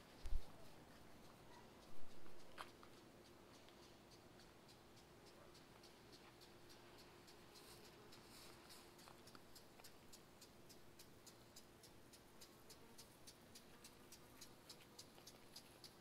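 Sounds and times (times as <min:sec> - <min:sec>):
fast high-pitched ticking: 0:03.2 - 0:16.0.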